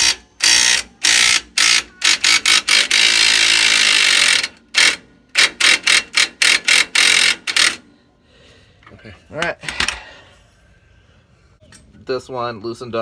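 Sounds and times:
electric impact wrench hammering: 0.0 - 7.9.

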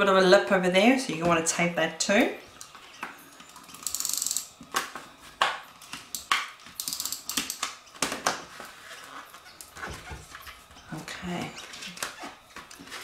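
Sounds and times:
tape runner ratcheting clicks: 3.7 - 4.6, 6.1 - 7.8.

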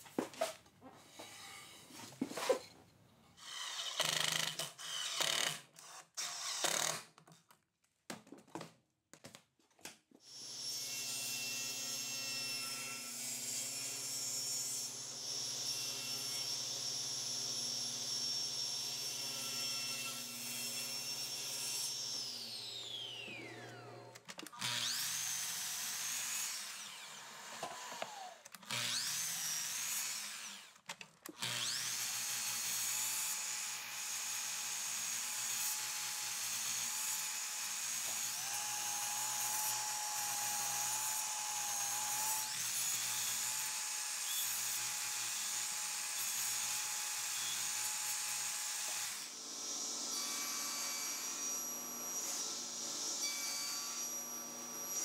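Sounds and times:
table saw whine cutting wood: 10.4 - 30.6, 31.5 - 33.2, 46.2 - 55.0.

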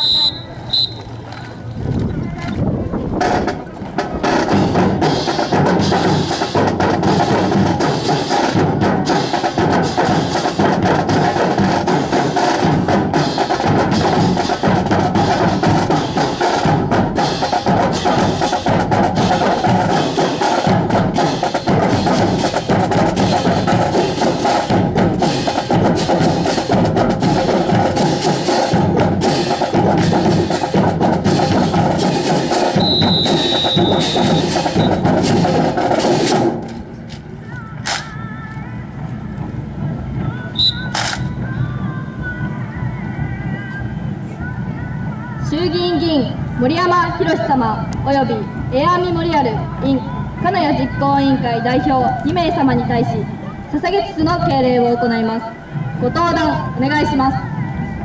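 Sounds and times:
marching drums playing cadence: 0.0 - 1.6, 3.2 - 41.9.

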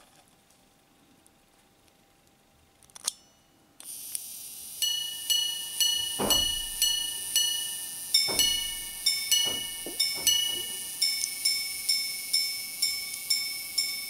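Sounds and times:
wristwatch gong chiming: 4.8 - 14.0.

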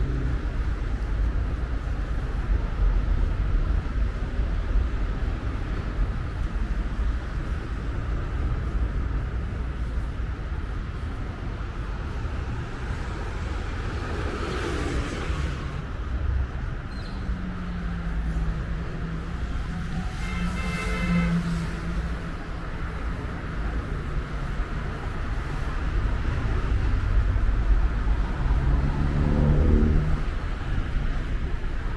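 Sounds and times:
street traffic rumble: 0.0 - 31.9
vehicle passing by: 28.0 - 30.4.

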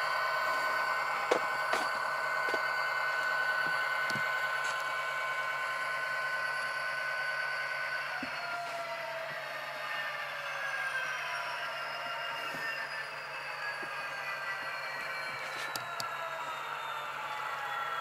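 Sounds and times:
diesel engine sound from small speaker: 0.0 - 18.0.

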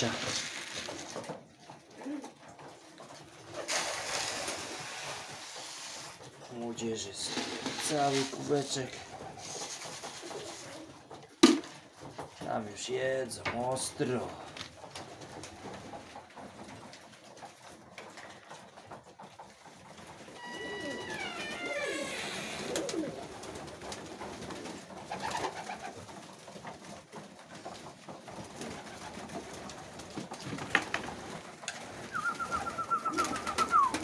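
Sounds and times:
pigeons cooing: 1.8 - 3.6, 20.2 - 24.0, 31.7 - 34.0.

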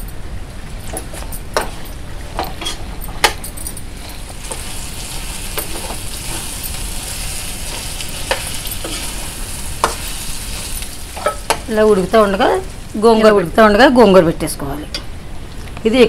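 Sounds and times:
frying sizzle: 4.0 - 14.2.

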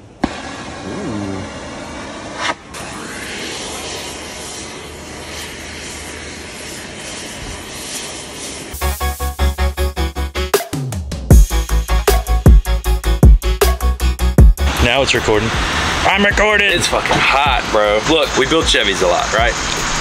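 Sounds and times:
torch hissing: 0.0 - 9.3, 14.7 - 20.0
short voice: 0.8 - 1.5
music: 8.8 - 15.3, 16.2 - 19.5.

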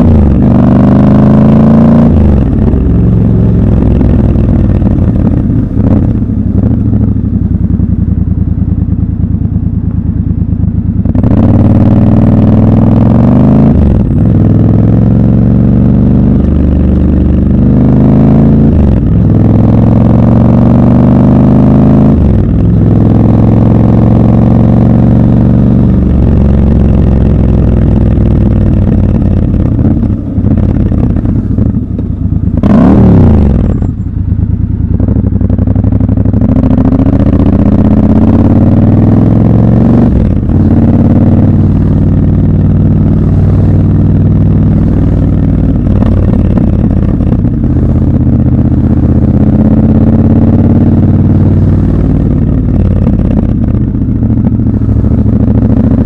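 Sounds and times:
motorcycle engine accelerating: 0.0 - 56.0.

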